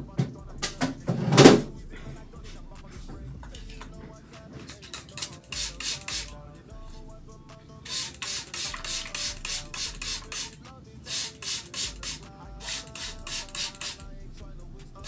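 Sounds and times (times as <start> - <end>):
background music: 0.0 - 15.0
spray bottle squirts: 4.7 - 6.3, 7.9 - 14.0.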